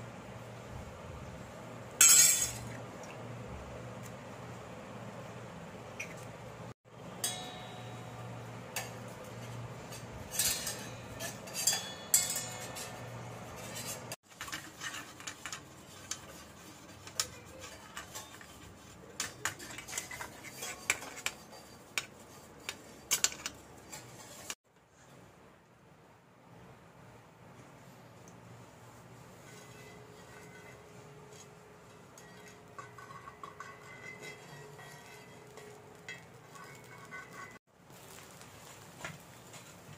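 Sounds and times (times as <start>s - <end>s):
metal spoon scraping steel bowl: 7.2s - 24.6s, 29.4s - 37.6s
cheese grated on metal grater: 10.0s - 24.6s, 32.8s - 37.6s.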